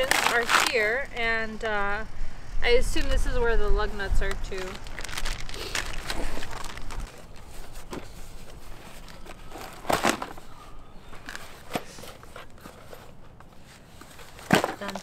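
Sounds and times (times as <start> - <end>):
packaging rustling and crinkling: 0.0 - 1.0, 4.2 - 15.0.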